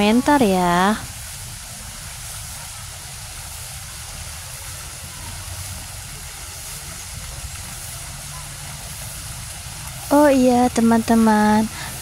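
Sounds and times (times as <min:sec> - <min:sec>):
faint hiss: 0:00.0 - 0:12.0.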